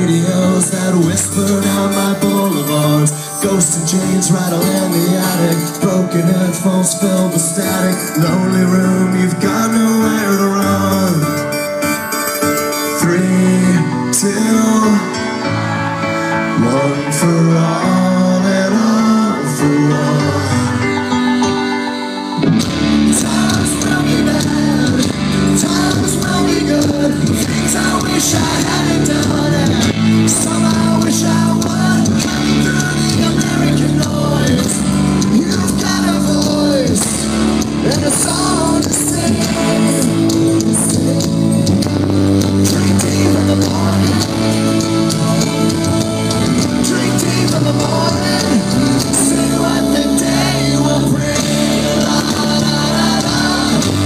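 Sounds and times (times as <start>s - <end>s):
live rock band playing: 0.0s - 54.0s
person singing: 0.0s - 54.0s.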